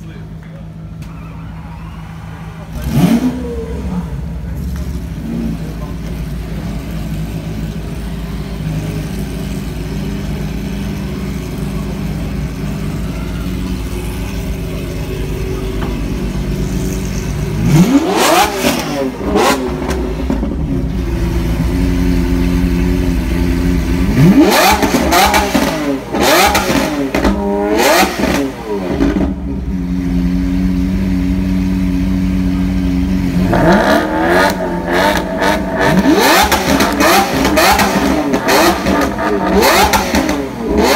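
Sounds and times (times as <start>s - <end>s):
car engine idling and revving: 0.0s - 40.9s.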